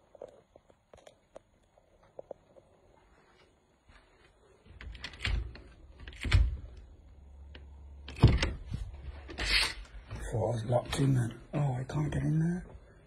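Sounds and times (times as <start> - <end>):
door handle clicks and knocks: 4.8 - 6.8.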